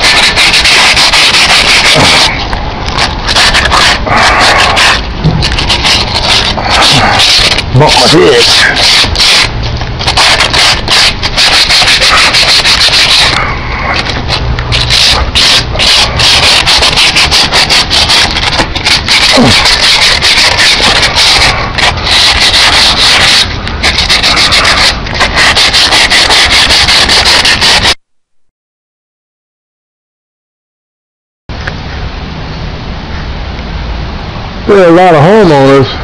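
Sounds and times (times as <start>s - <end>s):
rapid rubbing and scraping: 0.0s - 28.0s.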